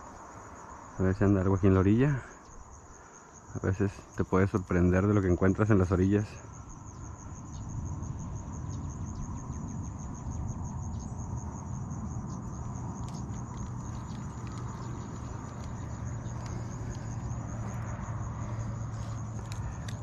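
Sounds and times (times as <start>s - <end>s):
cricket chirping: 0.0s - 20.0s
wind rumble on microphone: 5.2s - 20.0s.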